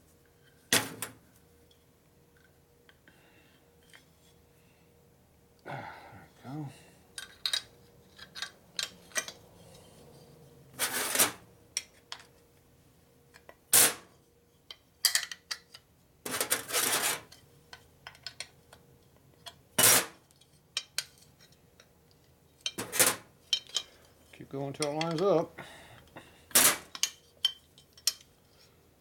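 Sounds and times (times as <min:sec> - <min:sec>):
metal parts clinking on workbench: 0:22.6 - 0:23.9, 0:26.6 - 0:28.3.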